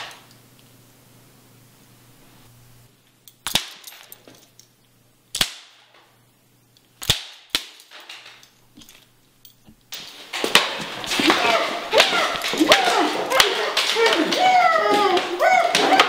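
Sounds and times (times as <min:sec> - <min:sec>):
faint low hum: 0:00.0 - 0:16.0
sharp cracks: 0:03.3 - 0:04.2, 0:05.3 - 0:06.2, 0:06.8 - 0:08.6, 0:09.8 - 0:16.0.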